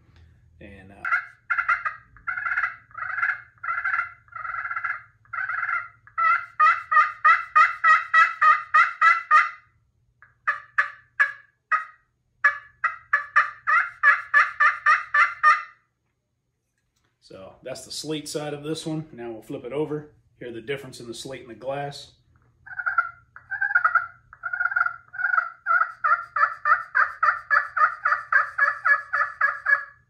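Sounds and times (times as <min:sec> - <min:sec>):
turkey call yelps: 0:01.0 - 0:15.8, 0:22.6 - 0:30.0.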